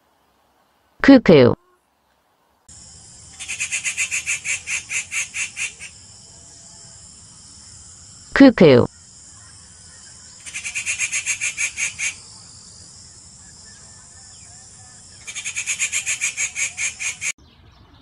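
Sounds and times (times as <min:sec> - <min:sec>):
steady high hiss: 0:02.3 - 0:17.4
cuckoo calling: 0:03.3 - 0:07.0, 0:13.1 - 0:18.0.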